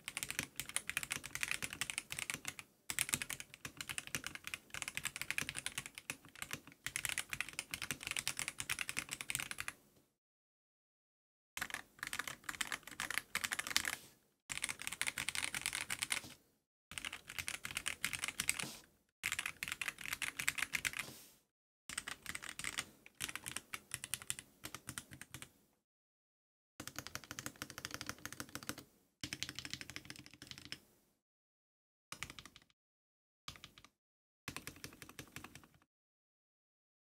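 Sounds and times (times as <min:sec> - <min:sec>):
mechanical keyboard typing: 0:00.0 - 0:09.8, 0:11.6 - 0:16.3, 0:16.9 - 0:18.6, 0:19.2 - 0:21.0, 0:21.9 - 0:25.5, 0:26.8 - 0:30.8, 0:32.2 - 0:32.7, 0:33.5 - 0:33.9, 0:34.5 - 0:35.8.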